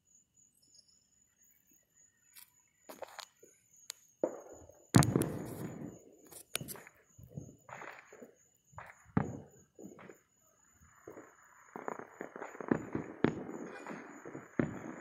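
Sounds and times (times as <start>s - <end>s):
distant firework booms: 4.2s - 6.2s, 7.2s - 10.3s, 11.0s - 15.0s
firework cracks: 5.0s - 6.9s, 11.1s - 15.0s.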